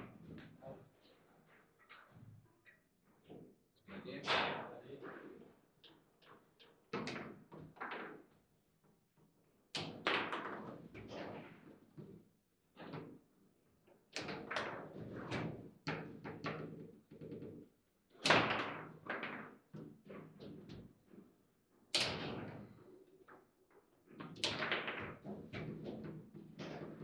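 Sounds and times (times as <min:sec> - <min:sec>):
table football knocks and clacks: 0:04.3 - 0:08.4, 0:09.2 - 0:13.3, 0:14.1 - 0:27.0.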